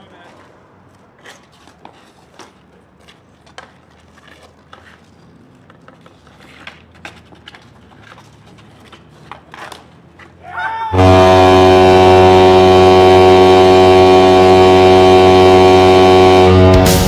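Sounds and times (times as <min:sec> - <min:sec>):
hockey sticks clacking on ball: 0:00.3 - 0:10.4.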